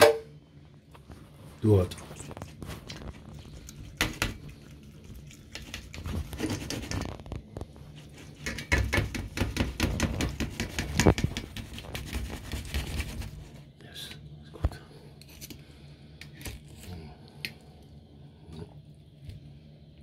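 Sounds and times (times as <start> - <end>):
knife and fork scraping a dish: 15.2 - 15.6.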